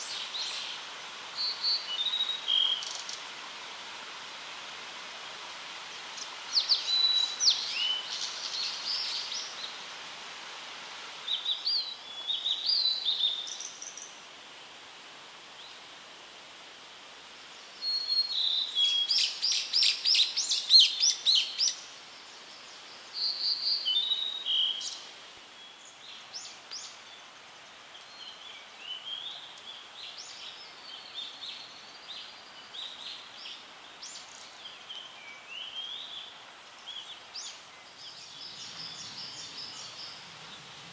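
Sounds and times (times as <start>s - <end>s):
steady background hiss: 0.0s - 40.9s
bird singing whistled notes: 1.4s - 3.2s, 6.5s - 9.7s, 11.3s - 14.1s, 17.8s - 21.8s, 23.1s - 25.0s.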